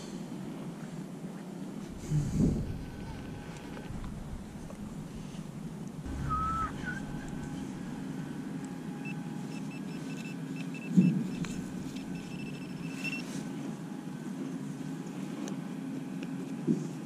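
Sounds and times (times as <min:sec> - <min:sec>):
low rumble: 0:01.8 - 0:09.6, 0:11.0 - 0:13.6
metal detector beeping: 0:09.0 - 0:13.4.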